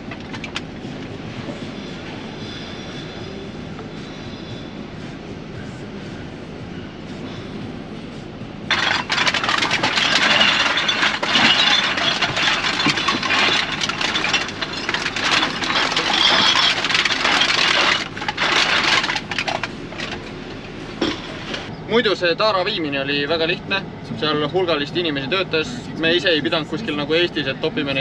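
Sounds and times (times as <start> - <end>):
plastic bags rustling: 8.7 - 20.2
bottles and cans clinking: 8.7 - 20.4.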